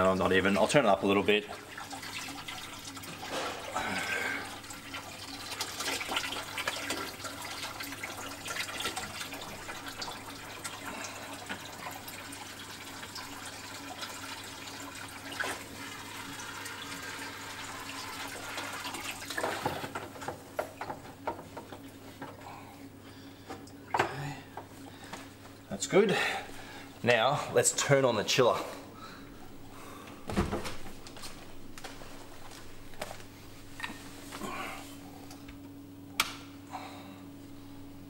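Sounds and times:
low constant hum: 0.0 - 16.8, 17.5 - 38.0
water pouring and splashing: 1.3 - 20.0.

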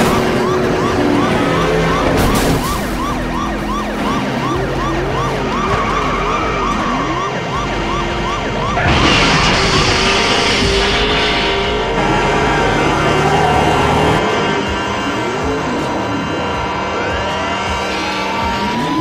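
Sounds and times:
police siren yelp: 0.0 - 19.0
wailing siren: 0.0 - 19.0
crash rush of noise: 8.8 - 14.7.

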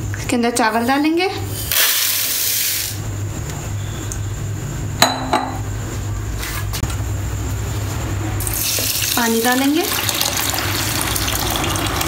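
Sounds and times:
glass bowl clinking on counter: 5.0 - 5.6
rice grains pouring: 9.9 - 12.0.

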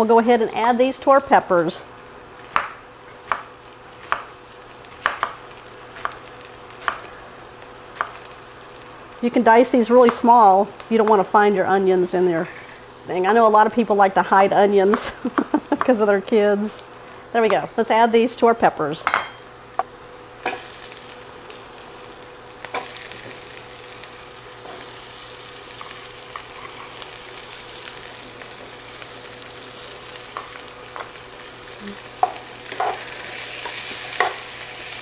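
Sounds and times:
vegetables sizzling in oil: 0.0 - 35.0.

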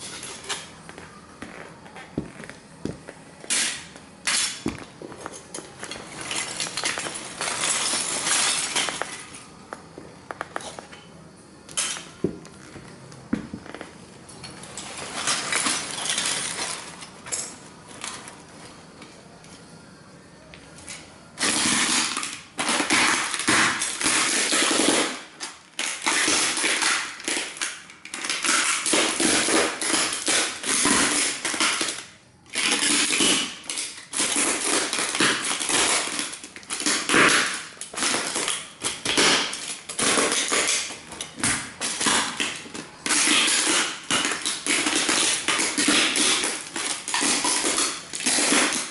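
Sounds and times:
boots crunching broken plastic pieces: 0.0 - 9.4, 21.4 - 48.9.

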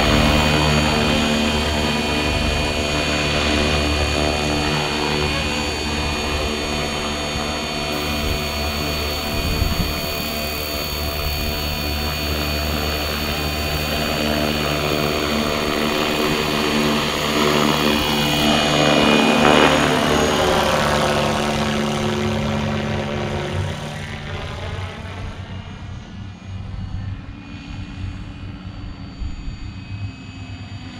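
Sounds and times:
electric motor whine: 0.0 - 25.6
helicopter rotor drone: 0.0 - 30.9.

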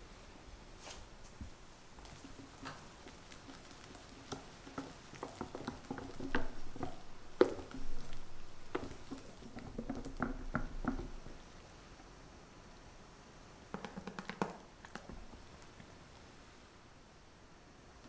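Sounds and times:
whisk tapping and mixing batter: 2.0 - 11.4, 13.7 - 15.4.

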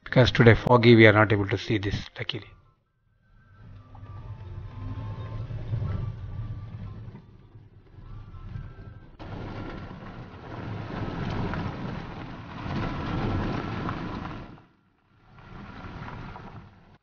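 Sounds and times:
wind noise: 3.4 - 17.0
tyres rumbling on gravel: 3.5 - 17.0.

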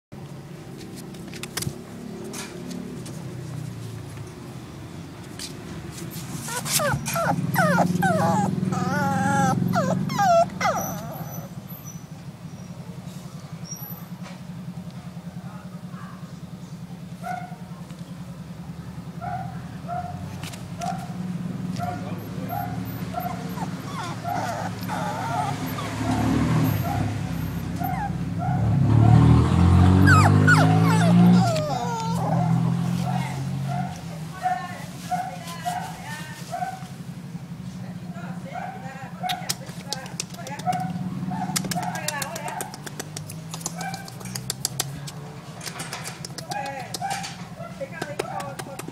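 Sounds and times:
puppy whimpering and yelping: 6.1 - 12.0, 21.8 - 28.6, 30.0 - 33.4.

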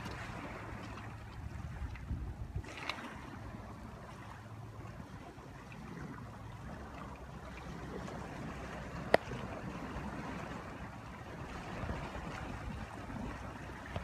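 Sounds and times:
small waves lapping on gravel: 0.0 - 14.0.

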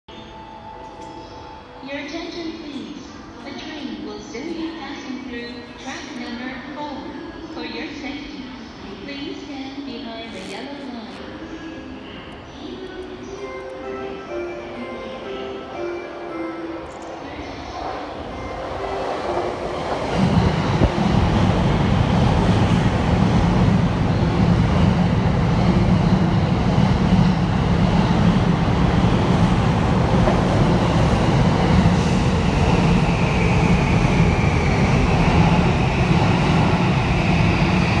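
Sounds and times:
high train whine: 0.1 - 38.0
train rumbling on rails: 11.0 - 38.0.

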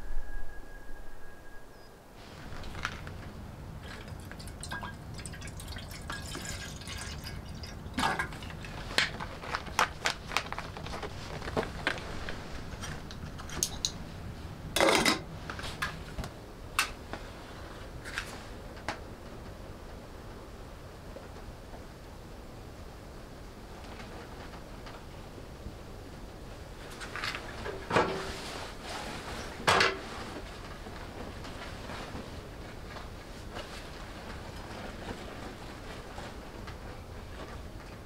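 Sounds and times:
water dripping: 3.8 - 8.8
water pouring into kettle: 3.9 - 8.6.

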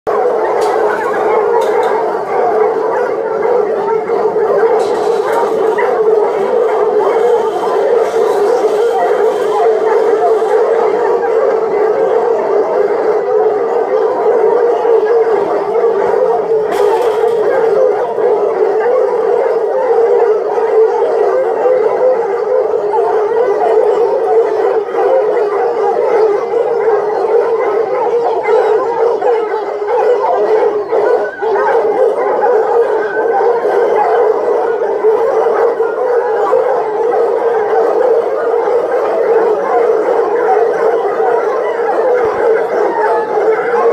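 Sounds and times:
hounds baying: 0.1 - 43.9.

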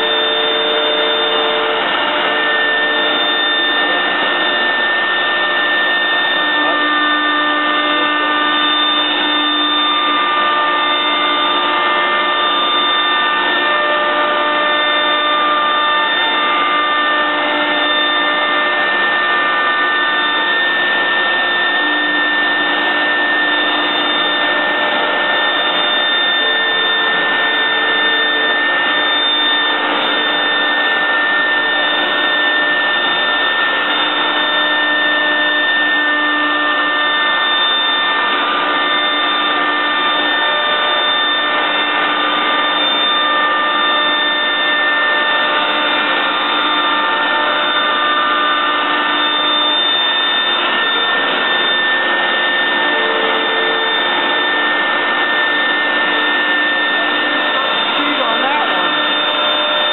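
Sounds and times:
router spindle whining: 0.0 - 59.9
dust extraction rushing: 56.9 - 59.9.

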